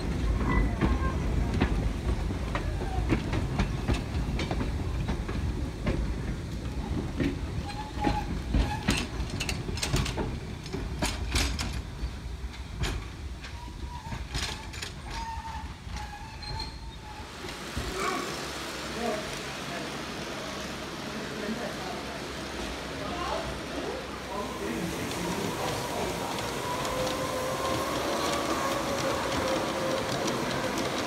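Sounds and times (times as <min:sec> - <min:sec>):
wheels clacking and knocking: 0:00.0 - 0:17.9, 0:24.4 - 0:31.0
train carriages rumbling: 0:00.0 - 0:31.0.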